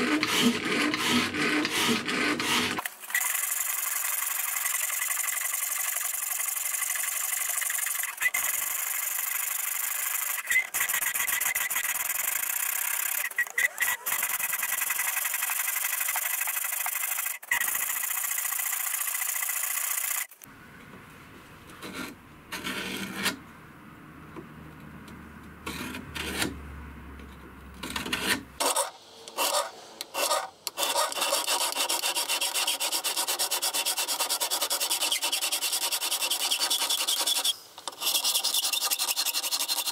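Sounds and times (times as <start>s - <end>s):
file rasping on steel blade: 0.0s - 2.8s, 28.1s - 39.9s.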